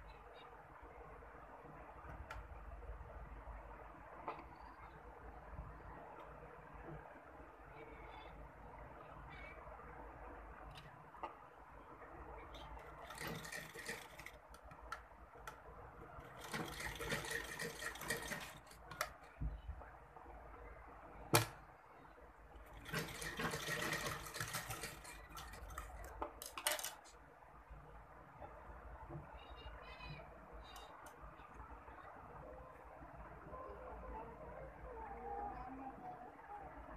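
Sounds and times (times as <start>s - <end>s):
sewing machine stitching: 12.6s - 14.9s, 16.1s - 19.3s, 22.6s - 27.0s.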